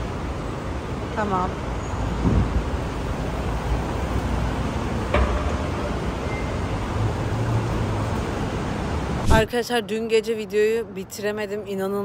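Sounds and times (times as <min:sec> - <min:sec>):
traffic rumble and hiss: 0:00.0 - 0:12.0
sharp knock: 0:05.1 - 0:05.8.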